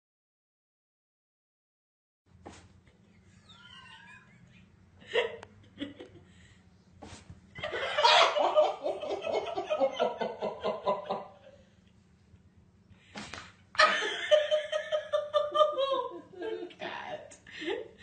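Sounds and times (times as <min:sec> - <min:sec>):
person laughing hard: 0:03.2 - 0:06.3, 0:07.6 - 0:11.5, 0:13.8 - 0:16.8.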